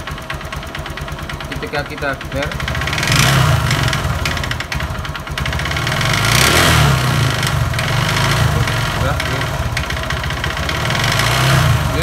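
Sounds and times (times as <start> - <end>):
engine rattle: 0.0 - 12.0
motorcycle engine revving: 0.0 - 12.0.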